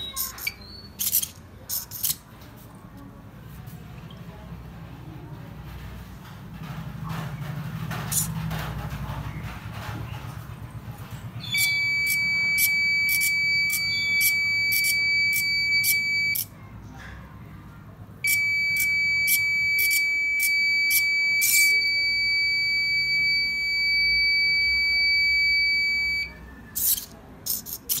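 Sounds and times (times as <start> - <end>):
high-pitched electronic buzzer tone: 11.4 - 16.5, 18.2 - 28.0.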